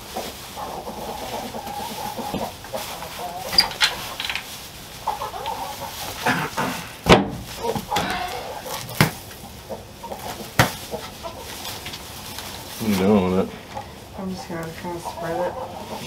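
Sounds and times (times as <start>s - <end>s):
chickens clucking: 0.0s - 16.0s
sharp knocks: 7.9s - 9.2s.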